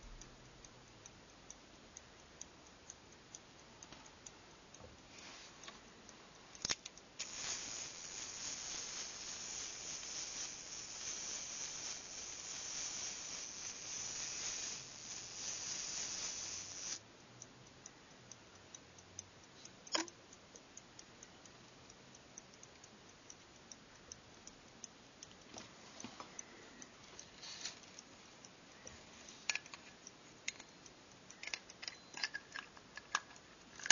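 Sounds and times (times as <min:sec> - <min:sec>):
watch ticking faintly: 0:00.0 - 0:33.9
metallic click: 0:19.9 - 0:20.2.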